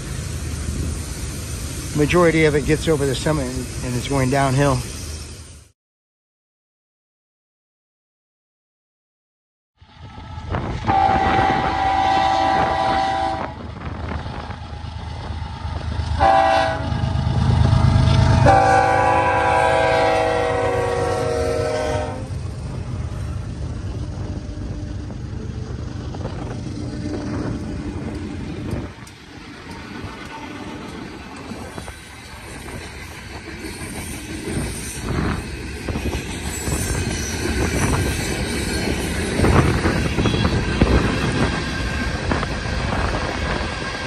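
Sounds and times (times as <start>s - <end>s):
diesel locomotives rumbling: 0.0s - 5.7s, 9.8s - 44.0s
locomotive air horn blasts: 10.8s - 13.6s, 16.2s - 16.9s, 18.4s - 22.3s.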